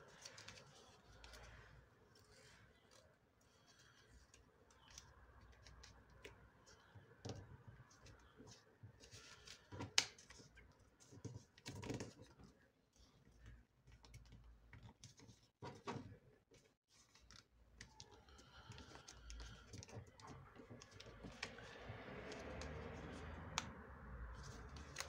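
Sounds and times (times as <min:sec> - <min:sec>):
paper rustling and creasing: 0:00.0 - 0:06.0, 0:14.0 - 0:23.6, 0:24.3 - 0:25.0.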